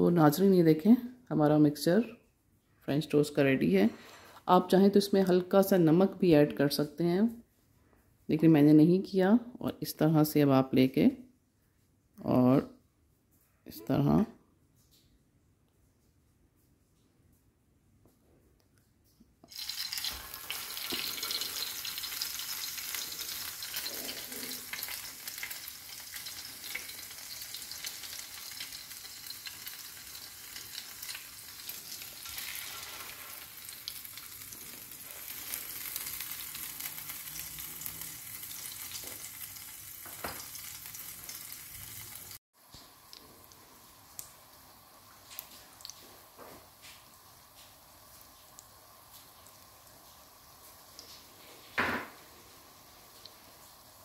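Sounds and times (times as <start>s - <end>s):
bread sizzling in hot oil: 19.4s - 54.0s.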